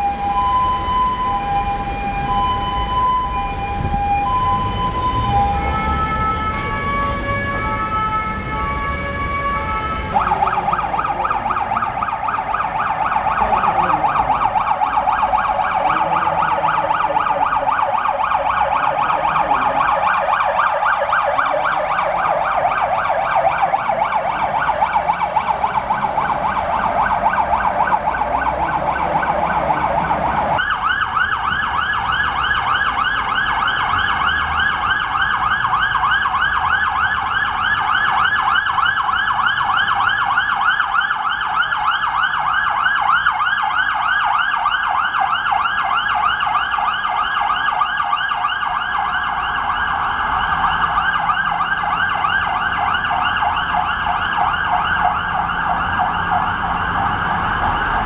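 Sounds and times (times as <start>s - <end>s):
emergency vehicle sirens: 0.0s - 58.0s.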